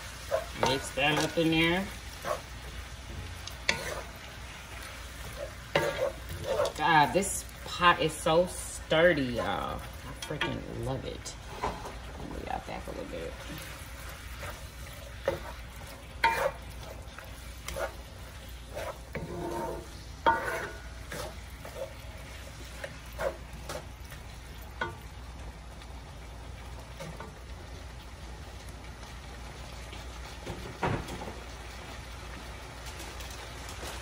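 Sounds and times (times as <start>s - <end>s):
wooden spoon scraping a pan: 0.0s - 25.0s
low frying sizzle: 0.0s - 34.0s.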